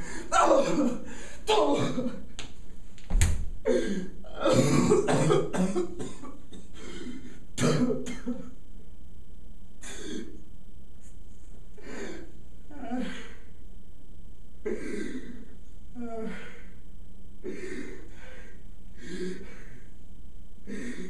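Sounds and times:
man coughing and gasping: 0:00.0 - 0:02.2, 0:03.7 - 0:08.6
body thumping on floor: 0:03.0 - 0:03.6.

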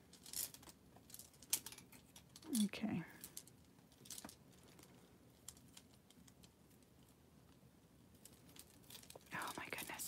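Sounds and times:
glass beads and chain clicking: 0:00.1 - 0:06.5.

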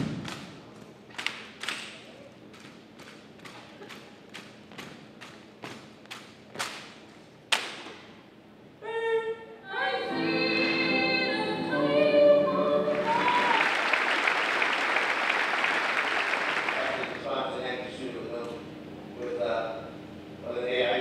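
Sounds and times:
loud stomp: 0:00.0 - 0:00.6
choir singing: 0:09.7 - 0:13.7
crowd applause: 0:12.9 - 0:17.2.

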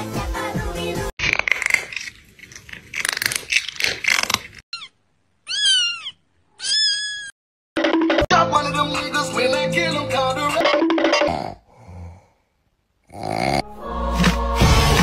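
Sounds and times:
cat screaming: 0:04.7 - 0:07.4
kitten meowing: 0:04.7 - 0:07.4.

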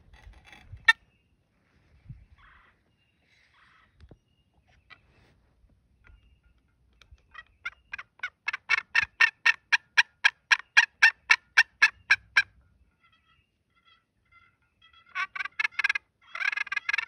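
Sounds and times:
turkey yelps: 0:10.5 - 0:17.0.

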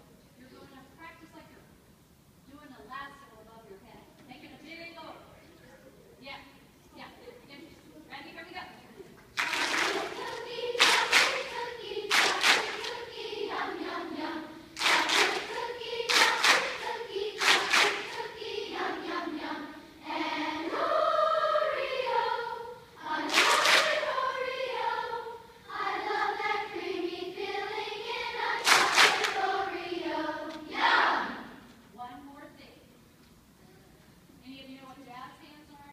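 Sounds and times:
children's choir singing: 0:09.4 - 0:31.7.

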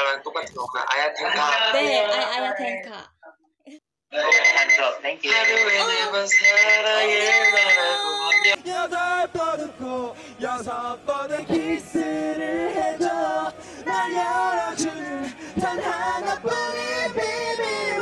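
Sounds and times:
men singing unaccompanied: 0:05.3 - 0:18.0.

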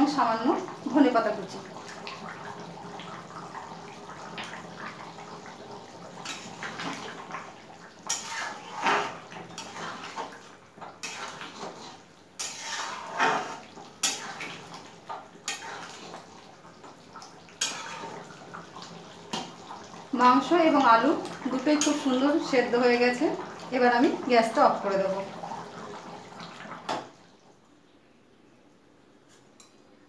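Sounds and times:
metal ladle scraping a pan: 0:08.0 - 0:10.3, 0:11.0 - 0:14.6, 0:15.4 - 0:16.2, 0:17.6 - 0:18.3, 0:21.6 - 0:22.4.

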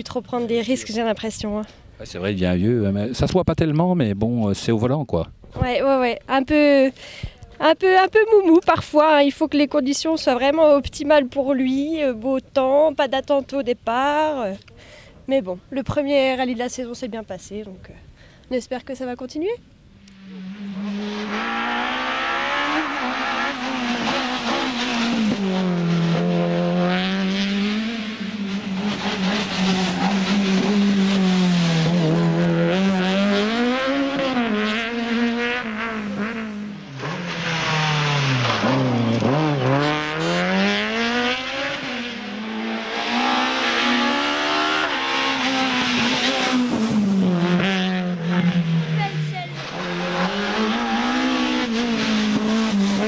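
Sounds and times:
rally car engine revving: 0:20.1 - 0:53.0.

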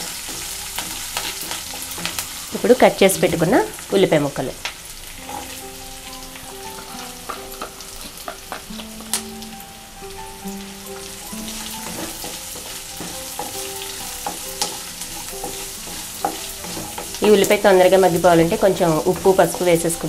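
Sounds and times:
spatula knocking and scraping pan: 0:00.0 - 0:03.4, 0:11.4 - 0:20.0
onions sizzling in oil: 0:00.0 - 0:20.0.

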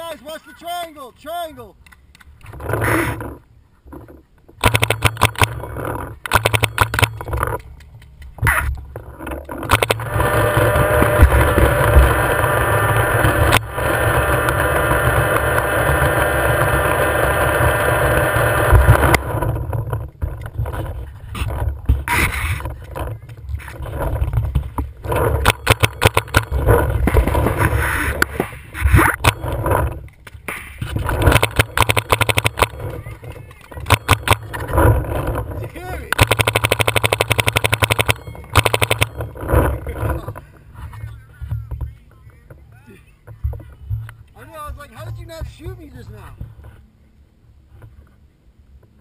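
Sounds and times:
steady noise: 0:00.0 - 0:49.0
paintball markers popping: 0:31.2 - 0:34.6.

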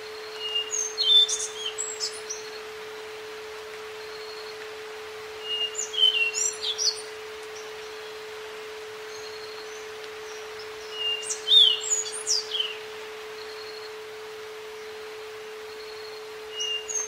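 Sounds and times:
faint hiss of nature ambience: 0:00.0 - 0:17.0
songbird chirping and whistling: 0:00.3 - 0:02.4, 0:05.4 - 0:07.1, 0:09.1 - 0:12.8, 0:16.5 - 0:17.0.

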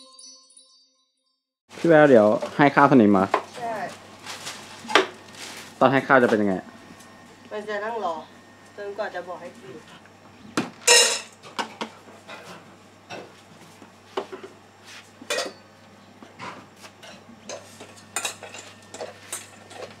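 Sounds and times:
spoon clinking against a dish: 0:17.1 - 0:19.9.

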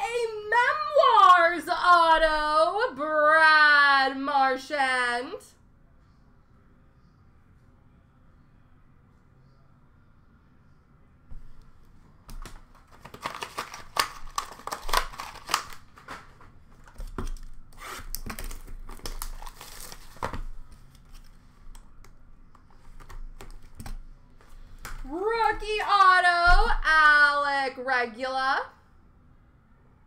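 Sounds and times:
wrappers tearing and crinkling: 0:12.6 - 0:21.4.

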